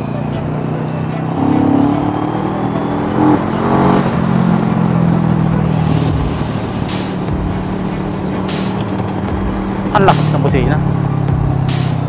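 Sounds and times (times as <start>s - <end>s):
motorcycle engine running: 0.0s - 12.0s
wind rushing over microphone: 5.4s - 8.5s.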